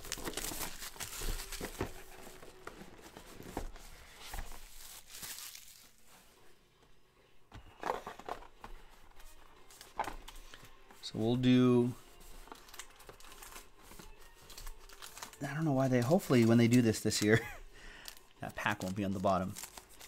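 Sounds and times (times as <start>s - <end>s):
plastic shrink-wrap crinkling and tearing: 0.0s - 2.3s, 4.5s - 6.0s, 12.3s - 20.0s.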